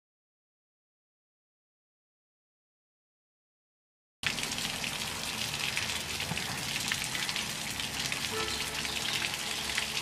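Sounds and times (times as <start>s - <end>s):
water gushing and splashing: 4.2s - 10.0s.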